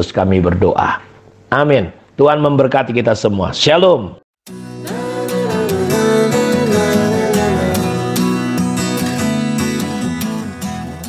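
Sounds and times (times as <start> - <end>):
acoustic guitar strumming: 4.5 - 11.0.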